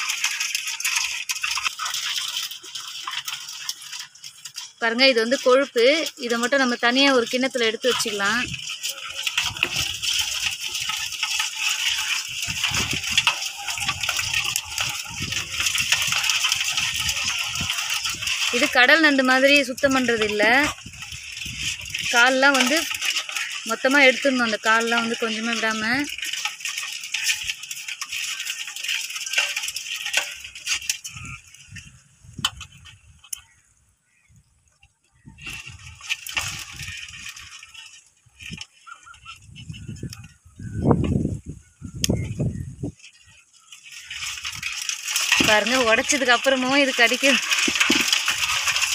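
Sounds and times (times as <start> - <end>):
bangles clinking: 0.0 - 31.8
crab shell crackling: 0.0 - 48.9
crabs scraping metal basin: 0.0 - 48.9.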